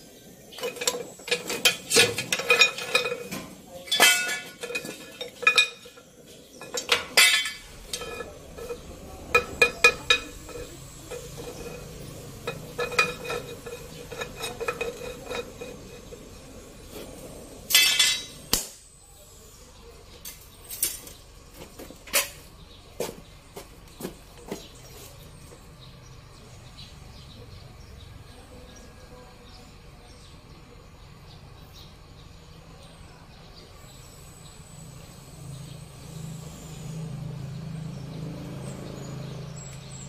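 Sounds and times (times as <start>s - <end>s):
steel tools clinking on metal: 0.5s - 16.6s, 17.7s - 18.5s.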